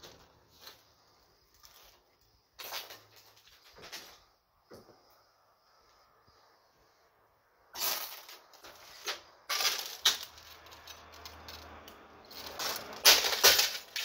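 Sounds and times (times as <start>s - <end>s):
broken glass crunching underfoot: 12.5s - 14.0s.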